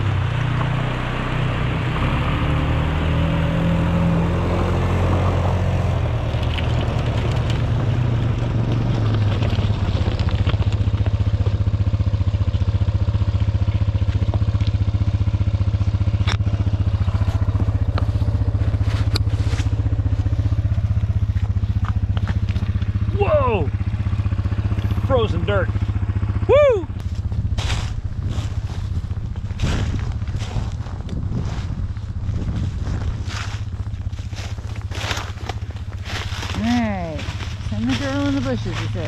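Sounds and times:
atv engine running: 0:00.0 - 0:39.0
sharp clicks on frozen ground: 0:06.1 - 0:11.7, 0:13.6 - 0:14.9, 0:16.1 - 0:23.0, 0:27.0 - 0:32.0, 0:32.8 - 0:36.8.

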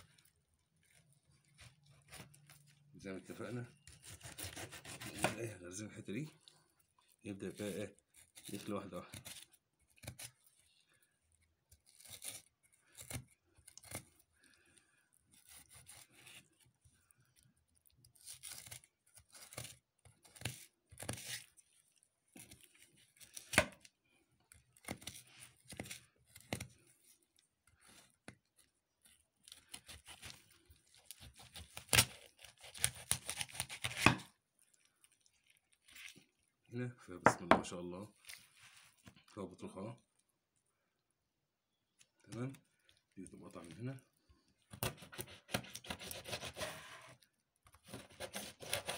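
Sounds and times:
knife rasping through fish: 0:03.8 - 0:05.4, 0:11.7 - 0:14.3, 0:15.2 - 0:16.8, 0:18.0 - 0:23.9, 0:24.6 - 0:34.3, 0:44.7 - 0:47.2, 0:47.8 - 0:48.9.

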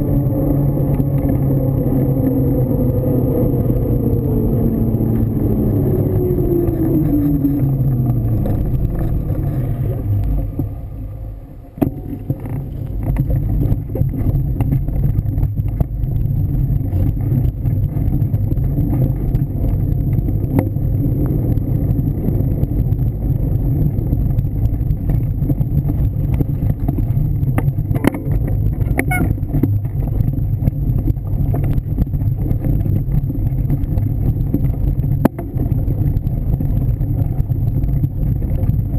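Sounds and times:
bike tyre rolling on dirt: 0:00.0 - 0:38.9
falling hum: 0:00.0 - 0:38.9
wind buffeting microphone: 0:00.0 - 0:38.9
bike clicks and rattles: 0:11.8 - 0:38.9.

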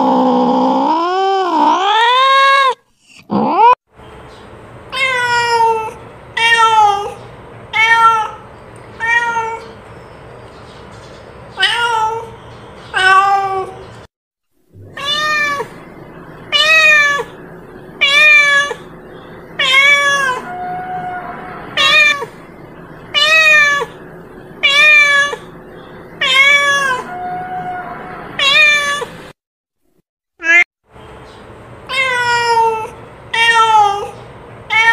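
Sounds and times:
cat meowing loudly: 0:14.8 - 0:15.8, 0:16.5 - 0:17.4, 0:18.0 - 0:18.9, 0:19.6 - 0:22.4, 0:23.1 - 0:24.0, 0:24.6 - 0:25.5, 0:26.2 - 0:29.2, 0:31.9 - 0:34.9.

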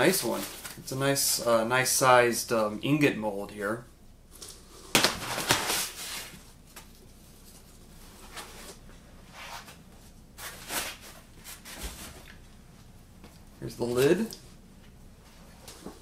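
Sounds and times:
plastic and foam packing rustling: 0:00.0 - 0:00.9, 0:04.9 - 0:08.8.

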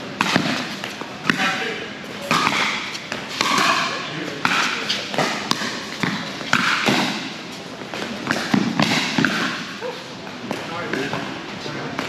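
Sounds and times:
paddles hitting plastic ball: 0:02.3 - 0:07.2, 0:07.9 - 0:09.6.

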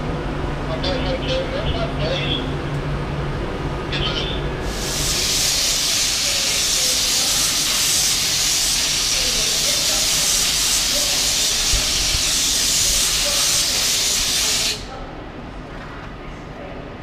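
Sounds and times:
train venting compressed air: 0:04.6 - 0:14.9.

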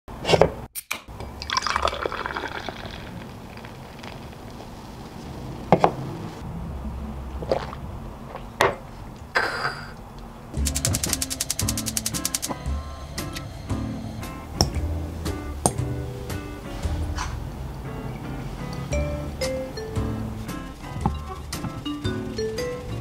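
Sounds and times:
beer pouring and fizzing: 0:01.3 - 0:04.2.

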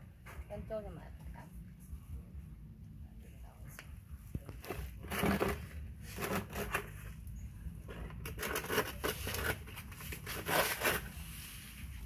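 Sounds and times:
rustling and crinkling handling noises: 0:04.3 - 0:12.0.

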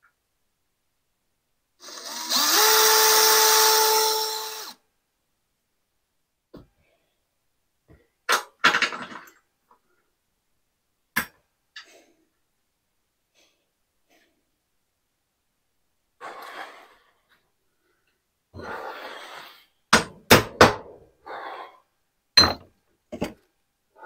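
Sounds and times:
tools knocking on metal: 0:22.4 - 0:23.4.

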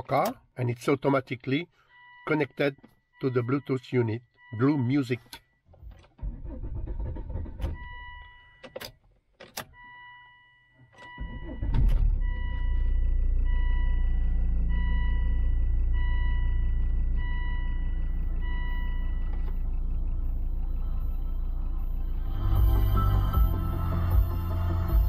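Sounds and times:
car engine cranking and idling: 0:05.7 - 0:09.8, 0:10.8 - 0:25.0
repeating electronic beep: 0:11.1 - 0:25.0.

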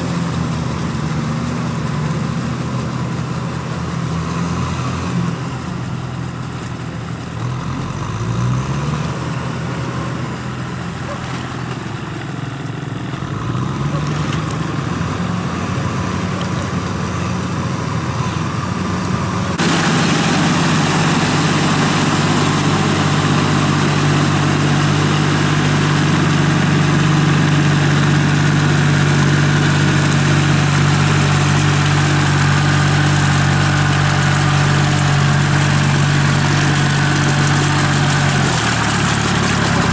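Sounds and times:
closer tractor engine: 0:00.0 - 0:39.9
tractor engines running: 0:00.0 - 0:39.9.

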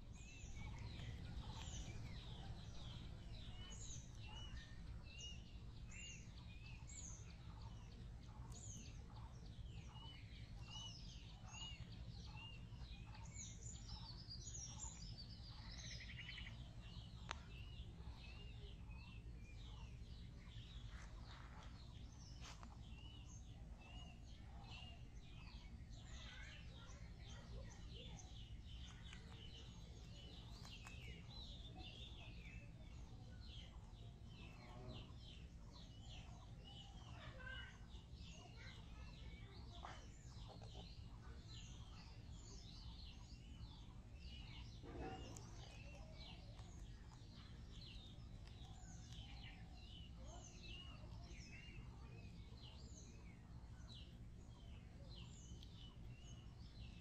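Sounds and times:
low background rumble: 0:00.0 - 0:37.9
small birds chirping: 0:00.0 - 0:57.0.

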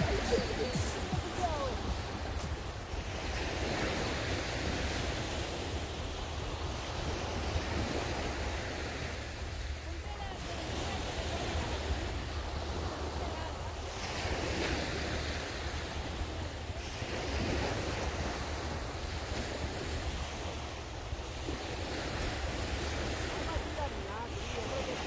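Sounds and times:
sea waves breaking on beach: 0:00.0 - 0:25.0
wind rumble on microphone: 0:00.0 - 0:25.0.

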